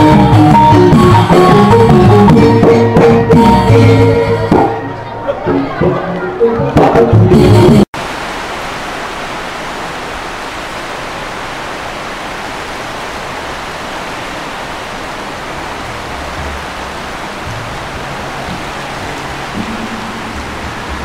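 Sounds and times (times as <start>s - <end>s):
steady hiss: 8.0s - 21.0s.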